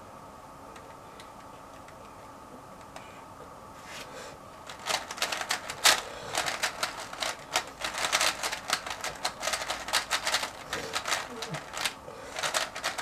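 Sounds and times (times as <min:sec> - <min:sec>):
puzzle cube plastic clicks: 0:04.7 - 0:13.0.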